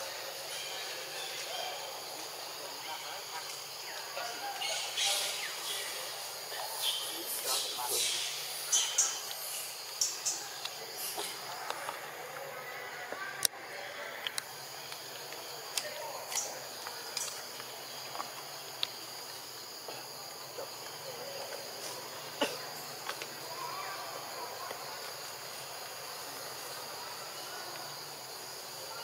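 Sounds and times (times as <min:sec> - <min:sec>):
high insect drone: 0:00.0 - 0:29.0
sharp clicks and snaps: 0:14.2 - 0:17.7.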